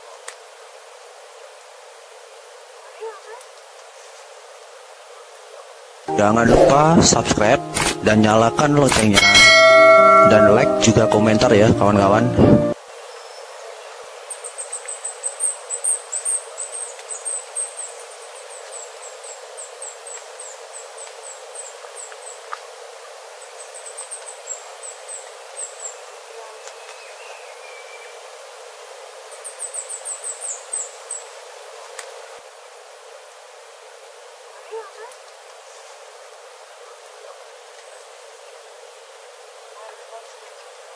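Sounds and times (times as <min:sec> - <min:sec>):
bird calling high thin notes: 0:06.1 - 0:12.8.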